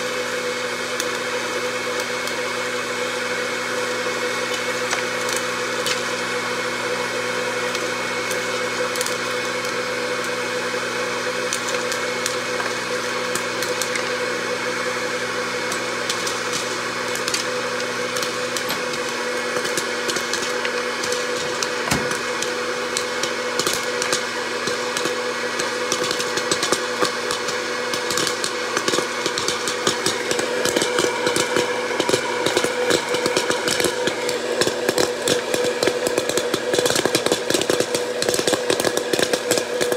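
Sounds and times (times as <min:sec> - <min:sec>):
popcorn popper fan hum: 0:00.0 - 0:39.9
popcorn kernels popping: 0:04.2 - 0:06.4, 0:07.6 - 0:10.4, 0:11.3 - 0:39.9.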